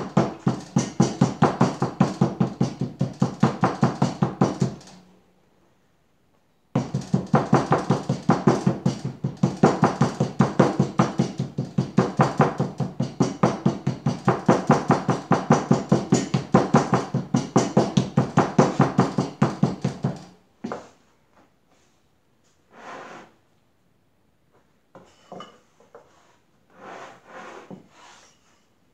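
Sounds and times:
rubber mallet striking clay: 0.0s - 4.9s, 6.8s - 20.3s.

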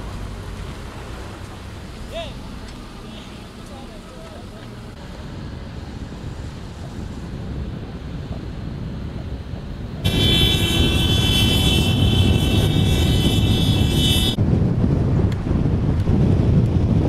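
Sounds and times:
car wind and road rumble: 0.0s - 17.0s
car horn held: 10.1s - 14.4s.

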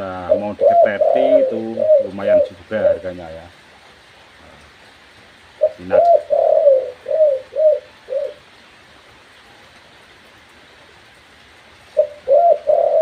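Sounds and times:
dove cooing: 0.0s - 3.5s, 5.5s - 8.6s, 11.9s - 13.0s.

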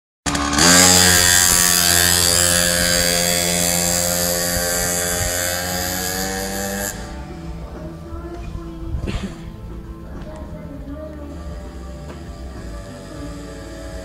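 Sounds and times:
small two-stroke engine revving: 0.3s - 7.8s, 11.3s - 14.0s.

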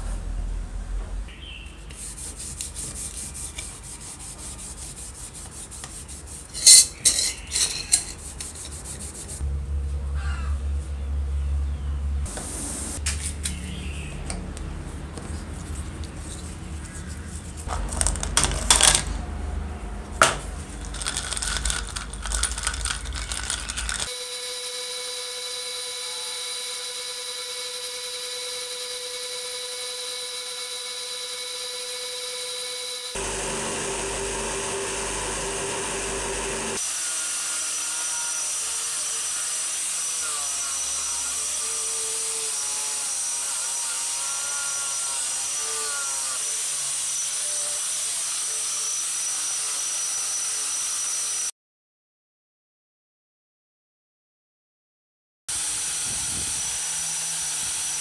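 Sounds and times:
wire brush grinder scrubbing metal: 2.0s - 9.4s, 20.8s - 24.2s, 33.2s - 49.8s
metal parts clinking in cup: 6.6s - 8.7s, 17.9s - 19.1s, 20.7s - 24.1s
power tool motor running: 21.0s - 51.5s, 55.5s - 58.0s.

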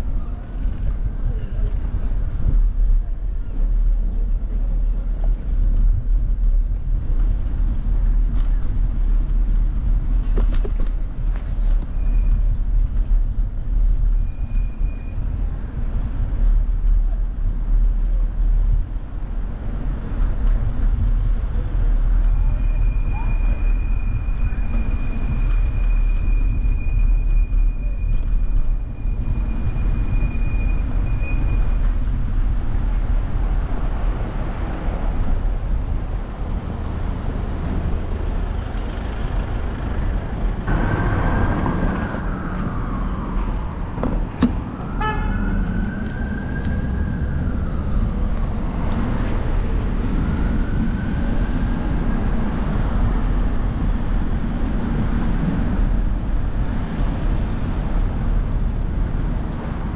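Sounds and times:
city street traffic: 0.0s - 59.9s
wind rumble on microphone: 0.0s - 59.9s.

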